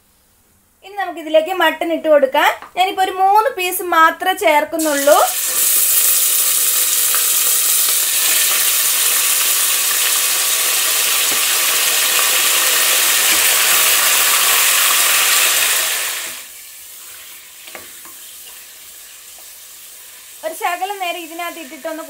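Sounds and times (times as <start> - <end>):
meat sizzling in hot fat: 4.8 - 22.0.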